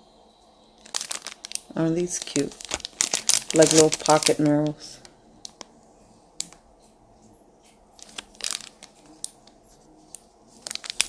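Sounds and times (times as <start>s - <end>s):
plastic bags crinkling: 0.8s - 5.8s, 8.0s - 11.0s.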